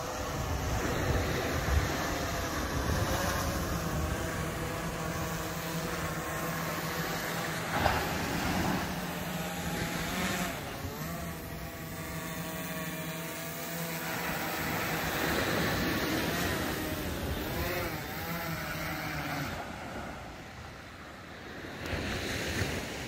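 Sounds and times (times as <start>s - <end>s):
drone propellers humming: 0.0s - 21.6s
breaking surf: 0.6s - 11.2s.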